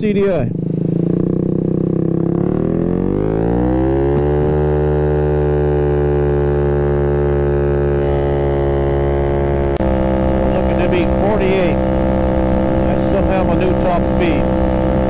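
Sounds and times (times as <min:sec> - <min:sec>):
scooter engine accelerating: 0:00.0 - 0:15.0.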